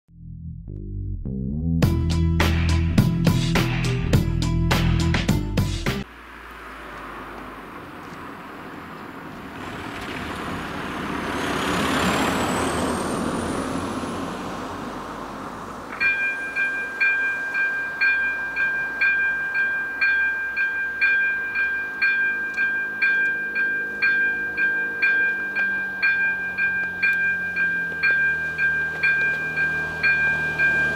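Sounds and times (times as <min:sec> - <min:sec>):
level crossing bell dinging: 0:16.0 - 0:30.9.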